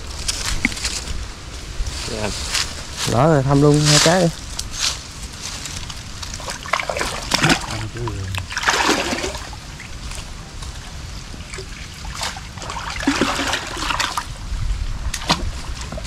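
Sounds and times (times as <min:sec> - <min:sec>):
water splashing in a creek: 0:06.0 - 0:16.0.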